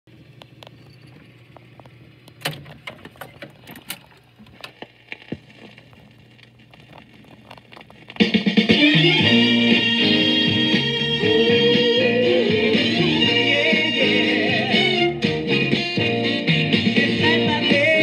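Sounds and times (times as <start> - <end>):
jukebox motor hum: 0.1 - 18.0
jukebox mechanism clicks and clacks: 2.3 - 4.8
guitar music: 8.1 - 18.0.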